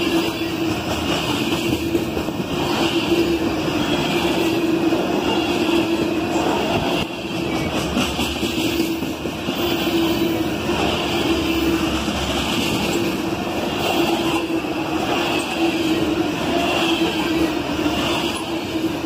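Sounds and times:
freight train wheels rumbling on rails: 0.0 - 19.0
train humming tone: 0.0 - 19.0.

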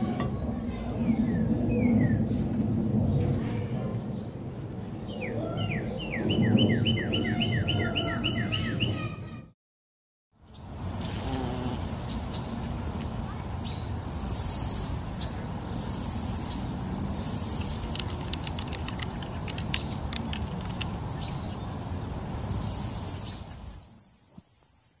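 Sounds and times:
steady hiss: 10.6 - 25.0
quick run of clicks: 16.4 - 21.2.

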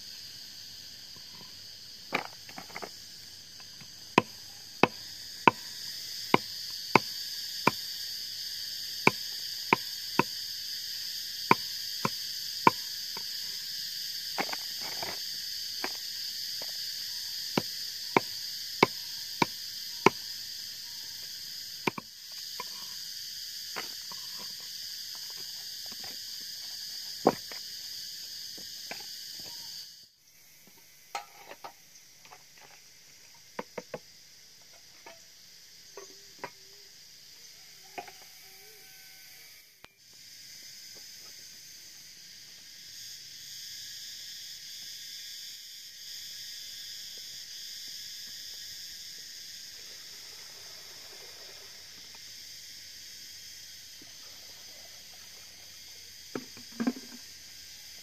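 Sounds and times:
insects buzzing: 0.0 - 58.0
blade chopping on wooden block: 17.6 - 20.2.

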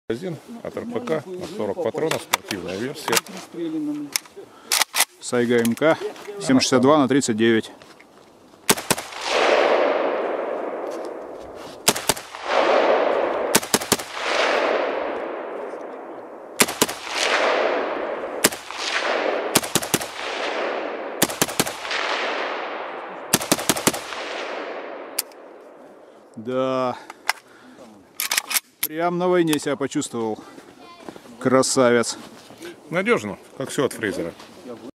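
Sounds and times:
rifle gunshots: 8.7 - 25.5
rolling echo: 8.7 - 26.3.

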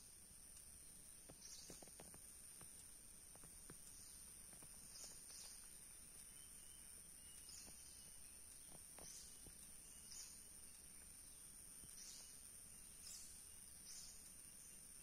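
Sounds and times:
steady high-pitched hum: 0.0 - 15.0
soft high chirps: 3.8 - 15.0.

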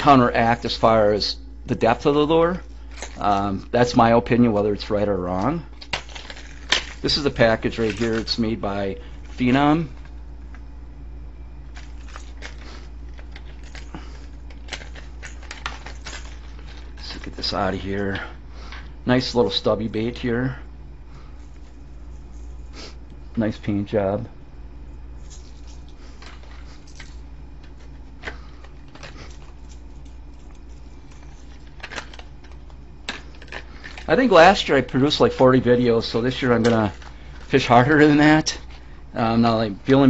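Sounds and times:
low hum: 0.0 - 40.0
plastic packaging clicks and crinkles: 25.3 - 35.0.

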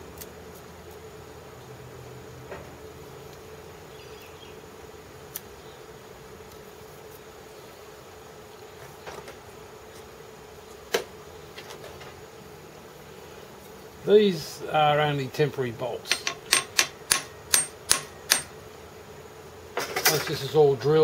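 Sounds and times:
low electric hum: 0.0 - 21.0
sharp knock: 16.1 - 18.5
small metal tools clicking: 16.1 - 18.5.

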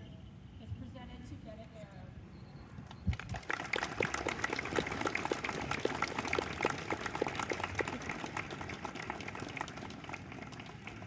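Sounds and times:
small audience clapping: 3.1 - 11.0.

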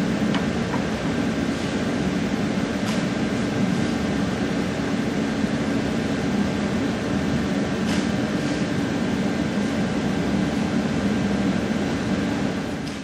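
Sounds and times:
machine hum: 0.0 - 7.8.

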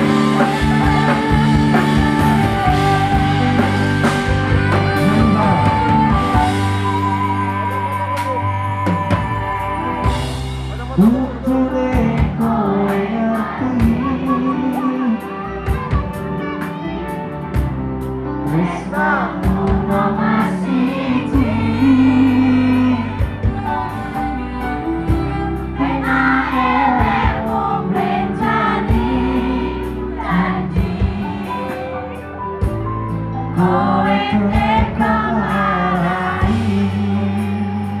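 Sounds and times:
steady drum beat: 0.0 - 12.7, 19.4 - 20.1
live band with singing: 0.0 - 38.0.

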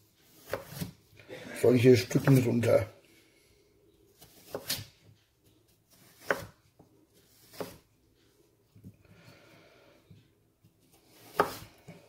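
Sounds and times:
knife cutting on wooden board: 0.3 - 1.0, 4.2 - 4.9, 5.9 - 6.6, 7.2 - 7.9, 11.0 - 11.9.

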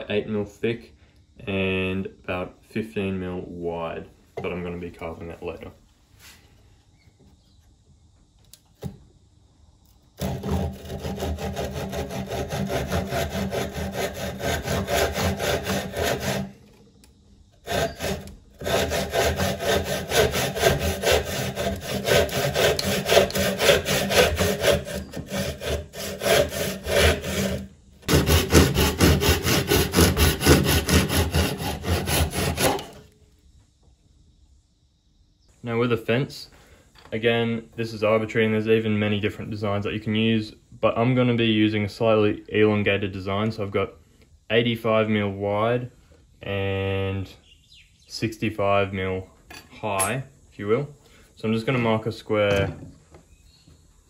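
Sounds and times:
hand saw cutting wood: 10.2 - 16.8, 17.6 - 33.1.

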